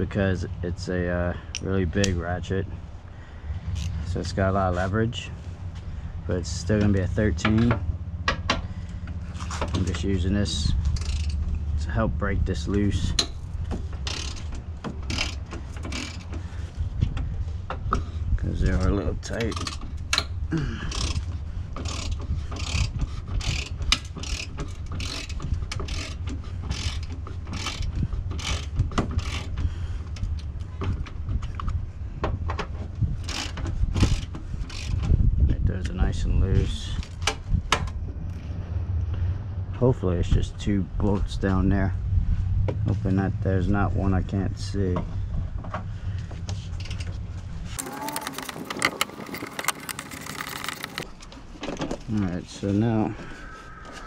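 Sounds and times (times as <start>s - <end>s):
steady low rumble: 0.0s - 47.8s
ratchet clicking: 10.8s - 11.7s, 13.2s - 16.5s, 19.2s - 29.6s, 33.2s - 35.2s, 47.8s - 51.1s
low hum: 37.0s - 41.0s.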